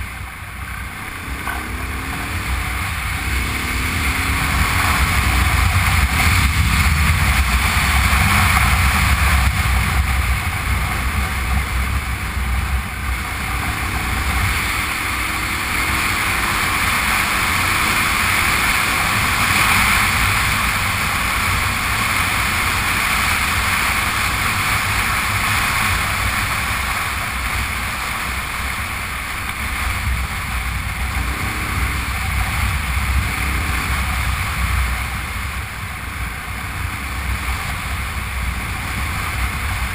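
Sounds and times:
motorcycle engine drone: 0.0 - 39.9
wind rush over microphone: 0.0 - 39.9.

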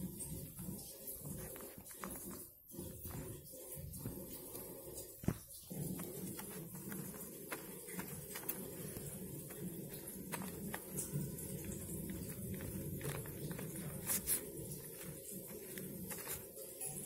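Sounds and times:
glue stick rubbing on paper: 4.0 - 17.0.

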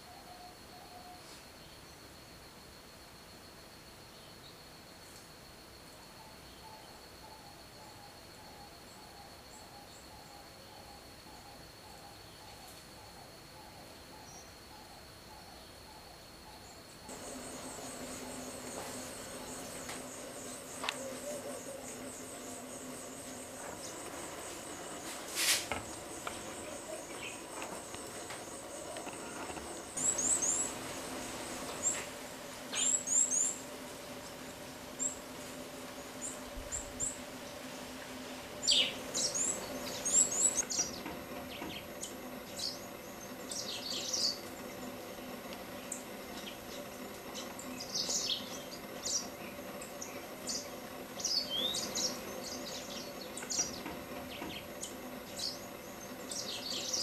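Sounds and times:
high insect buzz: 14.3 - 57.0
birds chirping: 16.6 - 57.0.

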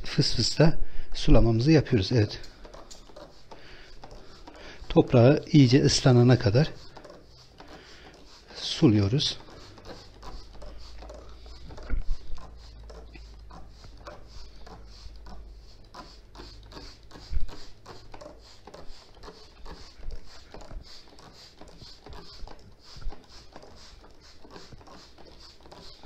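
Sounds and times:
spray bottle misting: 1.2 - 26.0.

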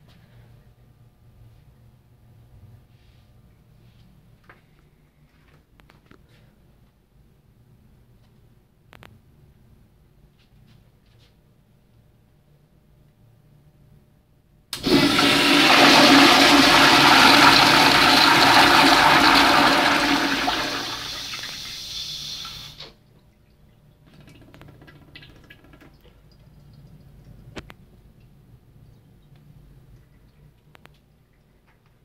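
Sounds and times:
toilet flushing: 14.8 - 23.0.

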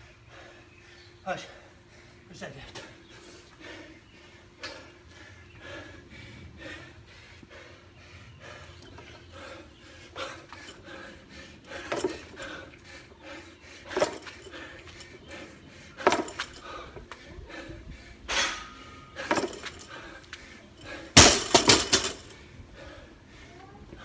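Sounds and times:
clatter of hard objects: 13.9 - 15.1, 16.0 - 16.8, 19.2 - 20.1, 20.8 - 22.4
sharp loud impacts: 21.1 - 22.3.

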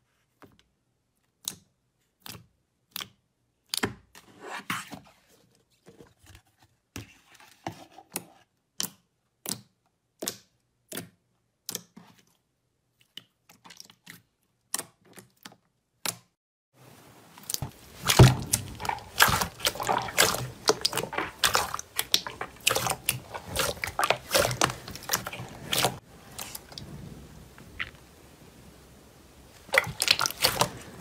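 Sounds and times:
slime squishing: 17.3 - 28.7, 29.3 - 31.0.

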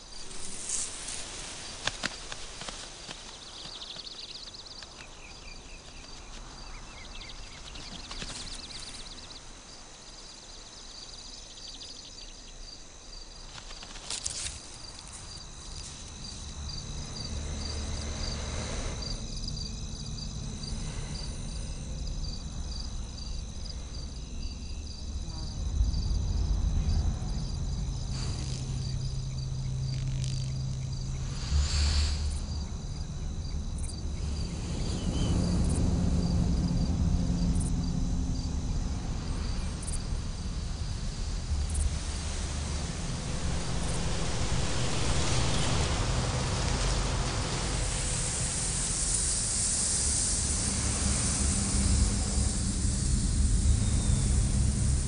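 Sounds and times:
insects chirping trill: 0.0 - 55.0
low steady rumble: 14.7 - 55.0.

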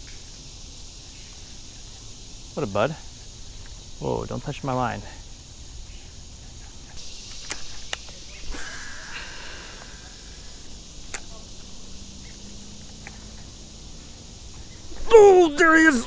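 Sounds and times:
insects buzzing: 0.0 - 16.0
sharp clicks: 7.3 - 8.2, 11.1 - 11.3.

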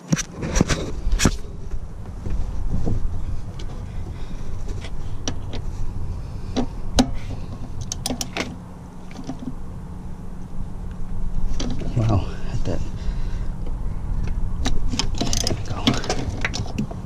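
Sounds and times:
steady low rumble: 0.0 - 17.0
socket ratchet clicking: 7.8 - 8.5.

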